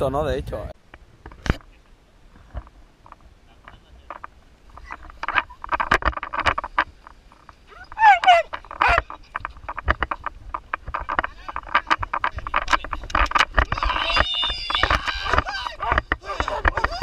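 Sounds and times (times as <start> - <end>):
wind buffeting microphone: 2.3 - 17.0
harness straps and clips rattling: 2.6 - 17.0
short high sliding cries: 7.7 - 9.0, 13.8 - 17.0.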